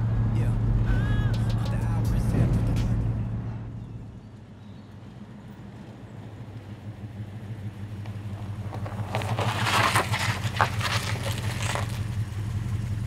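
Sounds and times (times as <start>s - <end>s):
truck engine rumbling: 0.0s - 13.0s
tyres crunching on gravel: 6.2s - 13.0s.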